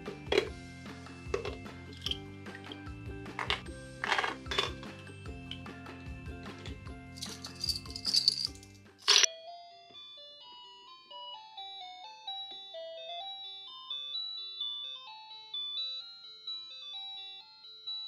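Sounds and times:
electronic ice cream van tune: 9.3 - 18.0.

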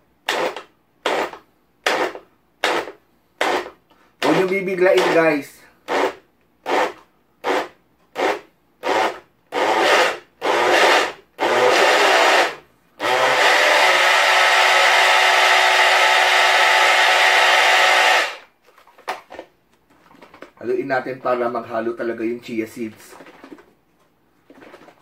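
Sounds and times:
blender whining: 5.9 - 18.5.

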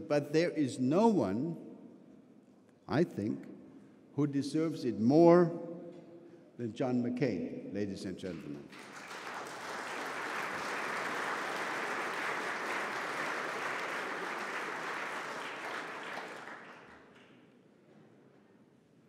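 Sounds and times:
audience applauding: 8.7 - 17.4.

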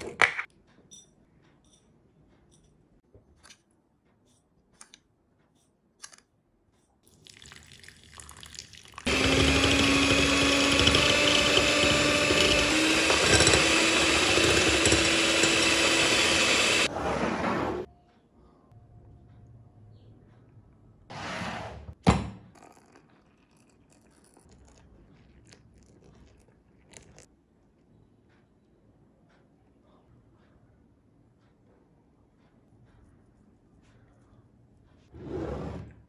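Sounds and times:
water pouring: 7.0 - 9.1, 22.7 - 27.3
electric whisk running: 9.0 - 16.9.

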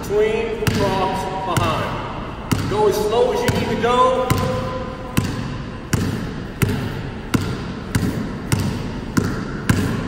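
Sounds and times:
basketball bouncing on hardwood: 3.5 - 10.0.

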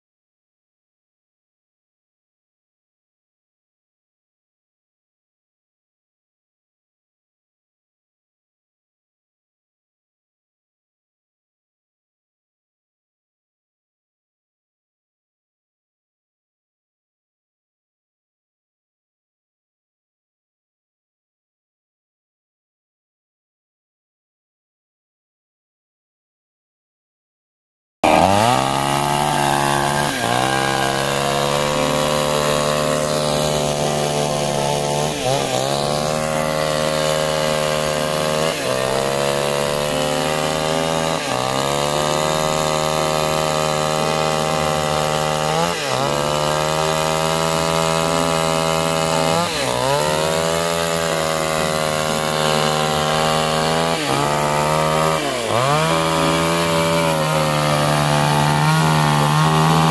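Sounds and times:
chainsaw cutting log: 28.0 - 59.9.

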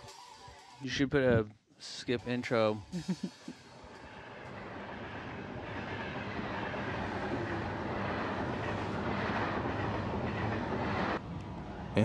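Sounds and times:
rushing rumble: 3.6 - 12.0.

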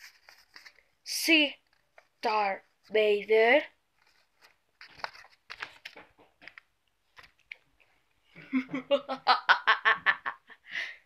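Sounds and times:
paper and toys rustling: 0.0 - 7.6.

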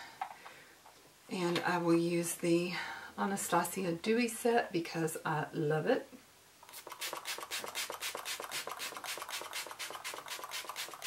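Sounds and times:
mist spray bottle hissing: 6.7 - 11.0.

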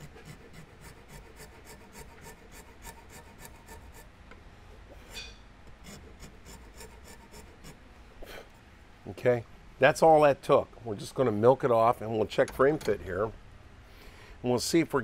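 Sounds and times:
file rasping across wood: 0.0 - 4.1, 5.8 - 7.8.

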